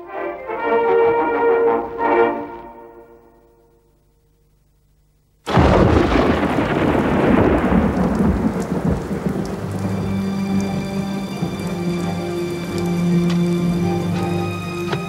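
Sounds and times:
brass music: 0.0 - 3.9, 7.8 - 15.0
heavy rain: 5.4 - 15.0
thunder clap: 5.5 - 12.9.

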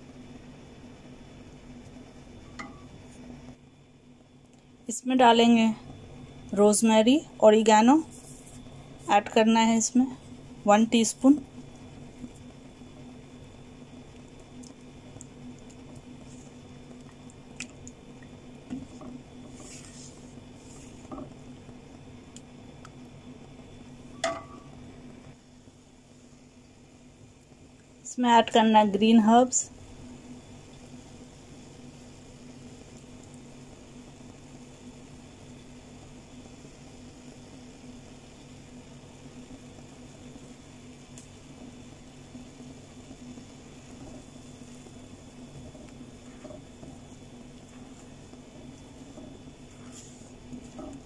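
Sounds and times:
low motor hum: 8.6 - 29.1, 29.7 - 51.0
sauce bubbling and squelching: 11.5 - 23.0, 39.8 - 51.0
faint hiss: 29.4 - 51.0.

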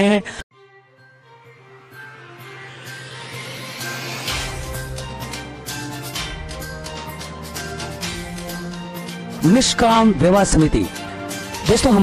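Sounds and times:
background music: 0.0 - 12.0
rising whoosh: 2.4 - 7.1.

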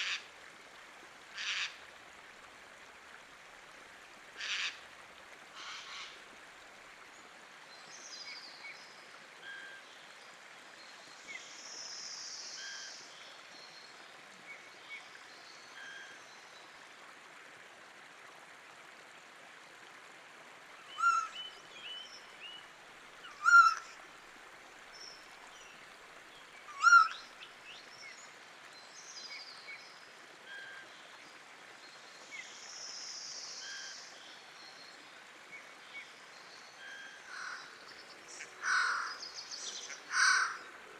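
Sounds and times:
stream rushing: 0.0 - 8.6, 16.6 - 40.9
birds calling: 23.2 - 23.9, 26.7 - 27.2, 37.3 - 40.8.

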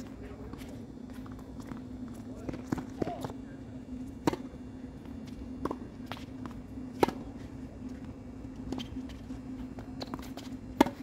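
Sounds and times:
steady low hum: 0.0 - 11.0
tennis ball bouncing on hard court: 4.2 - 7.4, 8.7 - 11.0
racket tapping ball: 4.2 - 11.0.

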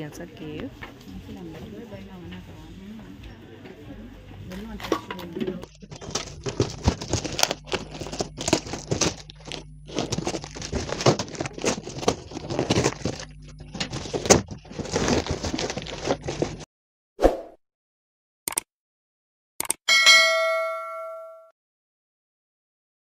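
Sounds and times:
paper rustling: 5.7 - 16.7
paper and tape tearing: 5.9 - 16.6.

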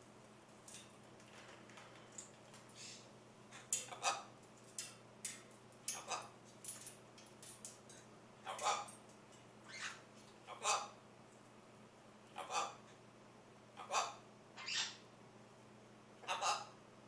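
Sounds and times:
parrot clicking and tapping: 4.6 - 9.2.

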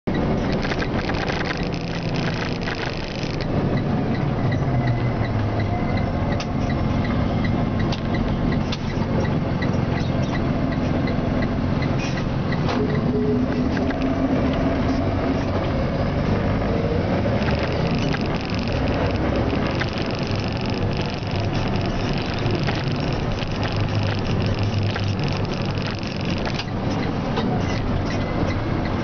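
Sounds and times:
truck engine rumble: 0.0 - 29.0
high whine: 0.3 - 3.4, 17.2 - 26.9.

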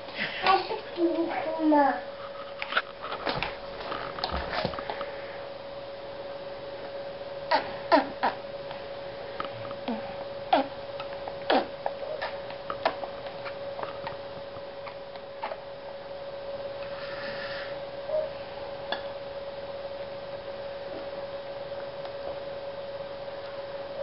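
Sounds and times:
steady high hum: 0.0 - 24.0.

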